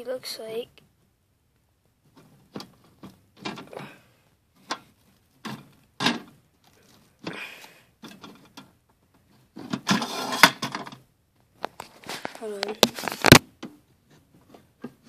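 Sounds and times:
terrarium knocks and scrapes: 4.6s - 7.3s, 8.0s - 11.0s.

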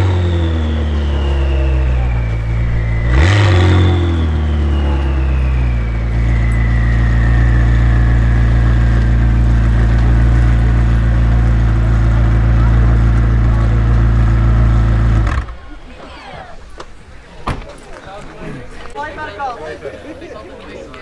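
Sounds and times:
faint high whine: 0.0s - 11.7s
car engine idling loudly: 0.0s - 15.6s
engine throttle blip: 0.0s - 15.9s
exhaust crack: 0.0s - 18.3s.

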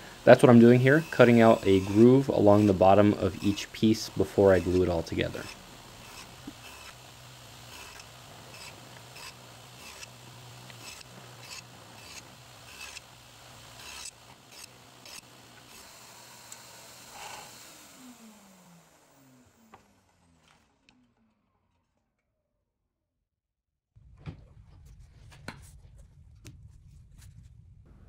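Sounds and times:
saw blade spinning down: 0.0s - 20.8s
table saw humming: 0.0s - 21.0s.

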